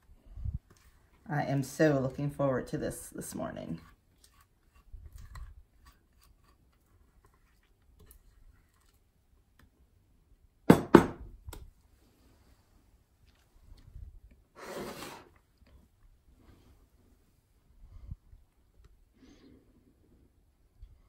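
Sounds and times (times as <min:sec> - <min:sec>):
sharp knocks on glass: 0:10.7 - 0:11.3.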